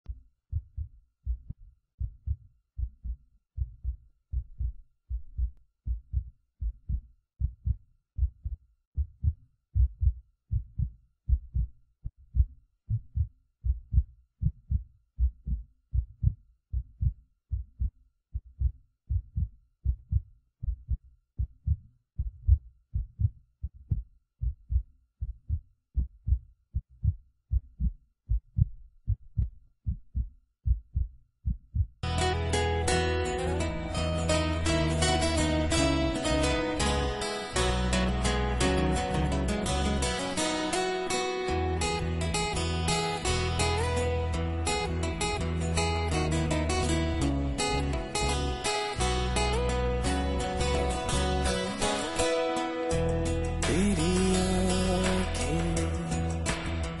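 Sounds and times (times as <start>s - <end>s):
heartbeat thumps: 0.1s - 32.0s.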